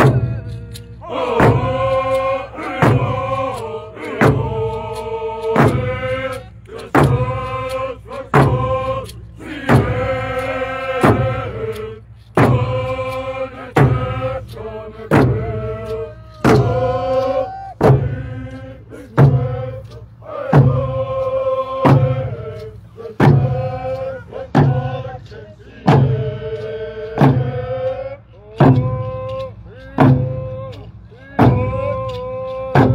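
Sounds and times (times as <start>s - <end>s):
drum beating: 0.0s - 32.9s
group of voices chanting: 0.0s - 32.9s.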